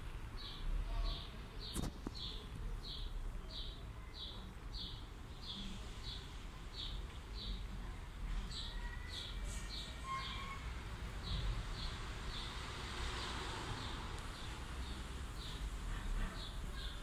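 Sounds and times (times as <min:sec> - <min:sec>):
small bird chirping: 0:00.4 - 0:07.6.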